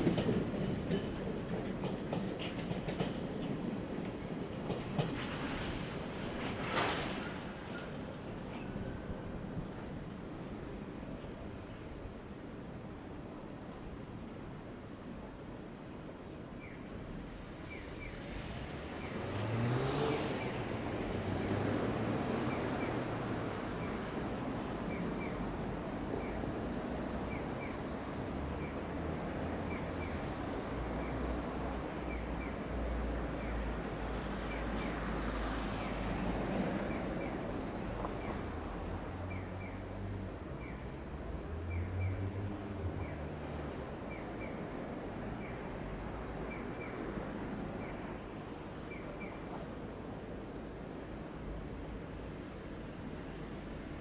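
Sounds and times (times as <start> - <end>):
wheels clicking over rail joints: 0.0 - 8.2
freight train rolling past: 0.0 - 11.9
road vehicle passing: 18.3 - 23.8.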